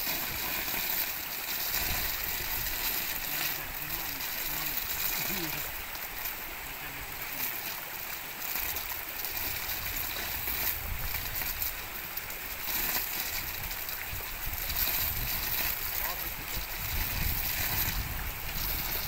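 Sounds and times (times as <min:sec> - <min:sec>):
running water: 0:00.0 - 0:19.0
wind on microphone: 0:01.6 - 0:07.1, 0:09.2 - 0:19.0.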